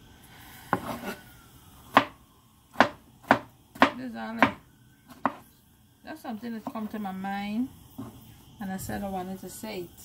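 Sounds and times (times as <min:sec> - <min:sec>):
knife chopping on cutting board: 0:01.9 - 0:05.4.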